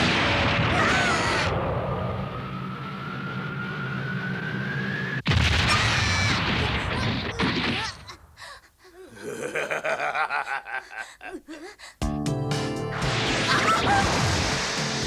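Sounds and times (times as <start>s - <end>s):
loud cartoon crash: 0.0s - 2.5s, 5.2s - 8.1s, 13.0s - 15.0s.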